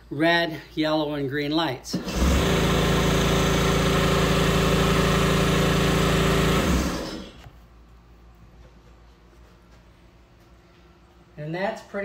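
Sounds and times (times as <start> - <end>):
electric motor humming: 2.0 - 7.5.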